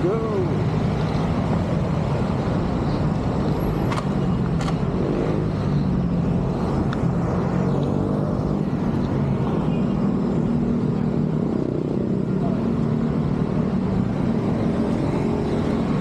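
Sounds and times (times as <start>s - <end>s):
road noise: 0.0s - 16.0s
vehicle engines running: 0.0s - 16.0s
sharp clicks: 3.9s - 4.9s.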